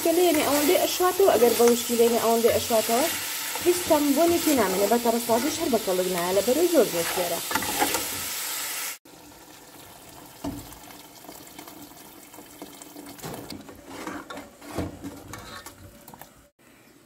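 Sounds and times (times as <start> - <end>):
frying sizzle: 0.0 - 13.6
water pouring into pot: 9.1 - 13.3.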